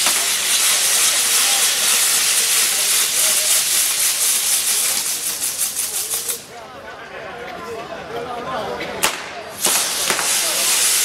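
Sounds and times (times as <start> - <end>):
firework wheel hissing and crackling: 0.0 - 6.6, 9.0 - 11.0.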